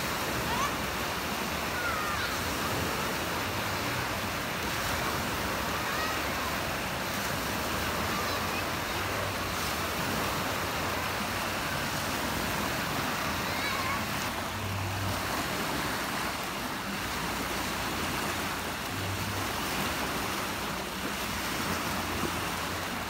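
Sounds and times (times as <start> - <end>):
waves breaking in a pool: 0.0 - 23.0.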